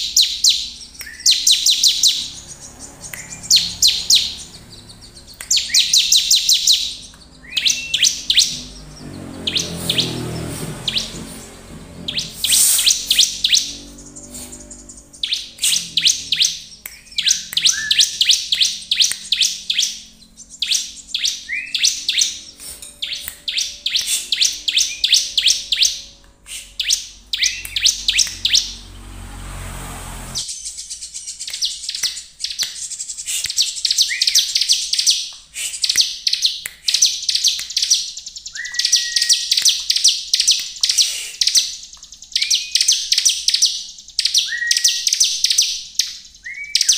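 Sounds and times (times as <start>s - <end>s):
bird singing high ticking notes: 0.0s - 46.9s
bird slurred whistle: 15.2s - 28.8s, 38.6s - 39.5s.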